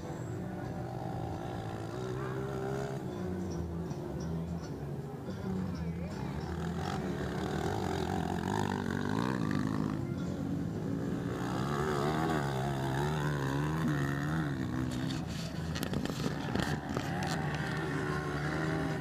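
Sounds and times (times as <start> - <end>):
motocross bike engine revving: 0.1 - 3.6, 6.3 - 19.0
engine crackles: 5.6 - 19.0.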